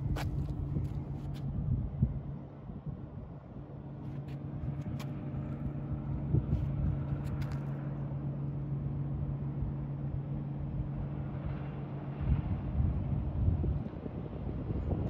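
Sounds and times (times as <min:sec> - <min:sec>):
light clicks and scuffs: 0:00.0 - 0:01.5, 0:04.0 - 0:05.8, 0:06.4 - 0:07.9
low machine hum: 0:00.0 - 0:15.0.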